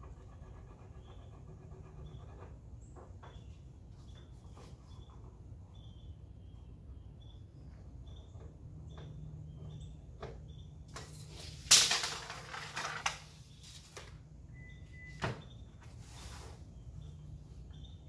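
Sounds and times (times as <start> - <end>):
tape measure snapping shut: 11.0 - 12.3.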